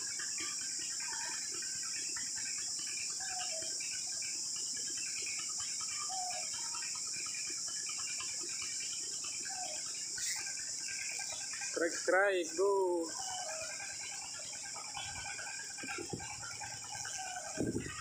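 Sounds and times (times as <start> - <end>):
insects droning: 0.0 - 18.0
bird chirps and calls: 3.1 - 4.0, 5.3 - 6.9, 9.3 - 18.0.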